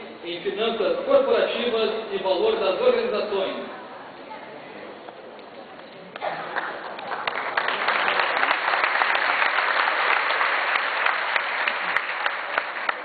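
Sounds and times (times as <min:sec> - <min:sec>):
audience applauding: 0:06.1 - 0:13.0.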